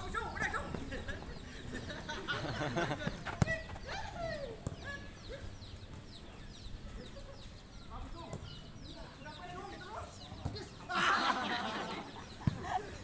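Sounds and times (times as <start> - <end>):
small birds chirping: 0.0 - 13.0
ball kick: 12.3 - 12.8.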